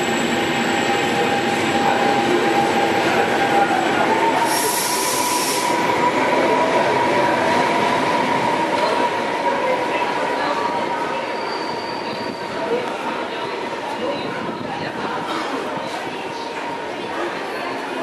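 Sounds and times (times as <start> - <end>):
electric locomotive passing: 0.0 - 14.0
train coaches rolling past: 0.0 - 18.0
burst of hiss: 4.4 - 5.8
train wheels squealing: 11.0 - 12.8.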